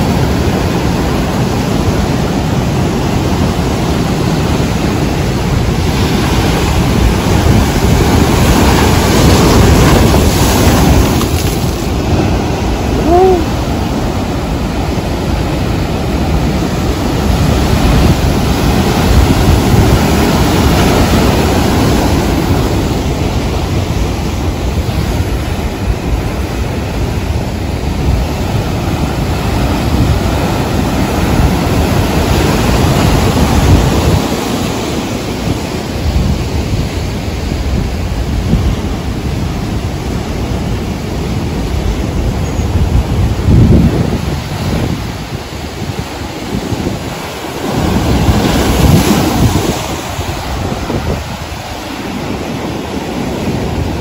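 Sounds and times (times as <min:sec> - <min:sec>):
heavy surf breaking on rocks: 0:00.0 - 0:54.0.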